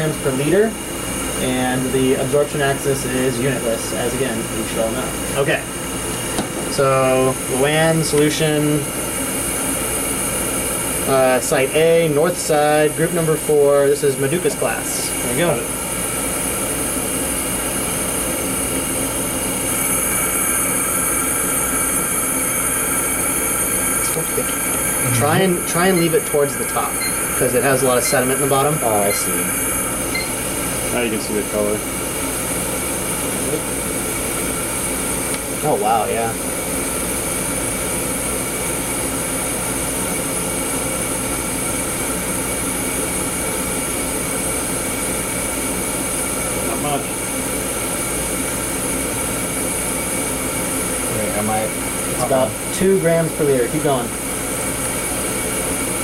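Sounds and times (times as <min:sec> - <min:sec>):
burner rushing hiss: 0:00.0 - 0:56.0
instrument humming: 0:18.4 - 0:32.4.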